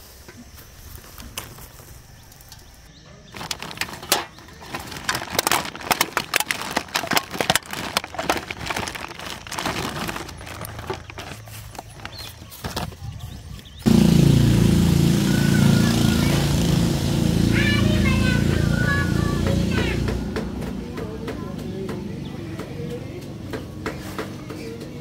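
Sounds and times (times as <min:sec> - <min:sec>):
low outdoor background: 0:00.0 - 0:25.0
plastic bag crinkling: 0:03.3 - 0:13.4.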